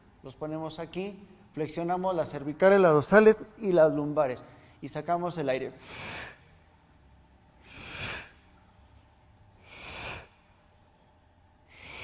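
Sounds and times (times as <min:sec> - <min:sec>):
man exhaling forcefully: 0:05.8 - 0:06.4, 0:07.6 - 0:08.4, 0:09.6 - 0:10.5, 0:11.7 - 0:12.0.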